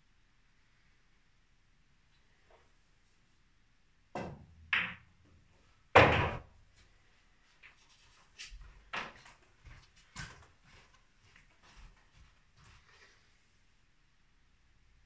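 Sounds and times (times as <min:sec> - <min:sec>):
ball dropping into pocket: 0:04.2 - 0:05.1
billiard balls clacking: 0:04.2 - 0:05.1
cue tip striking ball: 0:04.2 - 0:05.1.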